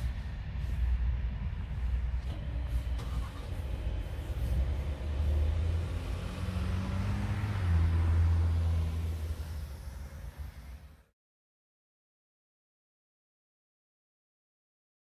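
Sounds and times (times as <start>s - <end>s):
cars driving past: 0.0s - 11.1s.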